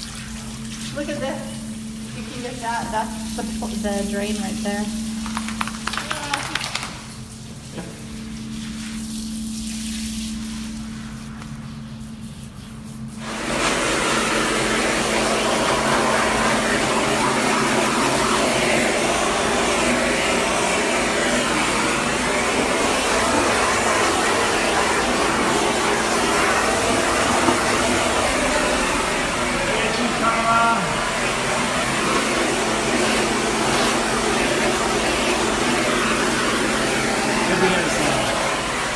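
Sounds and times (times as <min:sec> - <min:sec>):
blower rushing air: 0:13.1 - 0:38.9.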